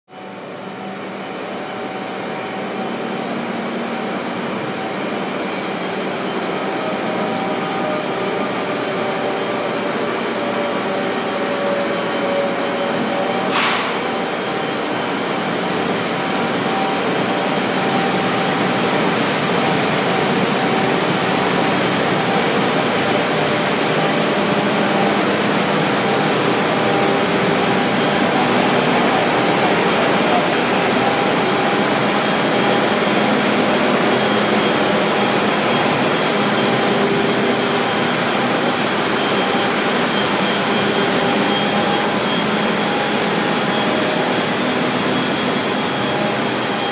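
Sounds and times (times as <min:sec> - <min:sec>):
railcar mover engine running: 0:00.1 - 0:46.9
machinery drone: 0:00.2 - 0:46.9
short sharp hiss: 0:13.5 - 0:14.1.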